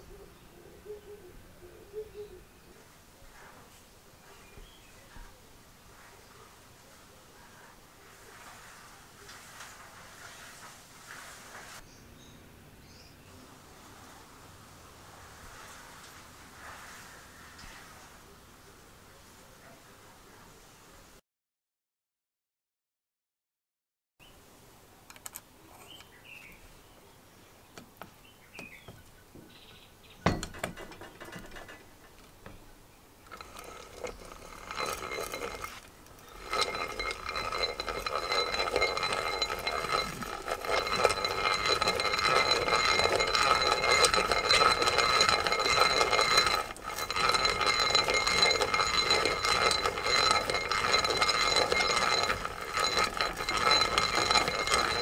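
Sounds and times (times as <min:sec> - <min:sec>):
hand drill gears whirring: 0:33.3 - 0:55.0.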